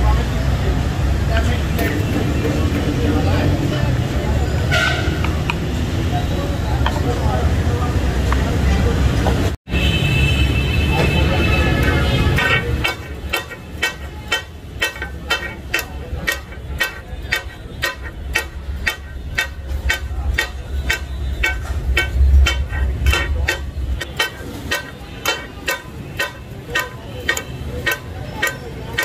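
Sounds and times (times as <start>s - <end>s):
metal blades clanking on griddle: 11.6s - 29.0s
low steady rumble: 11.9s - 26.7s.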